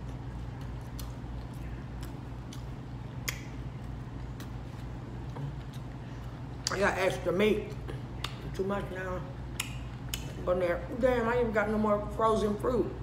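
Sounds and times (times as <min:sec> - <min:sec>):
person chewing with lips smacking: 0:00.0 - 0:06.8, 0:07.6 - 0:08.6, 0:09.4 - 0:10.4
steady low hum: 0:00.0 - 0:13.0.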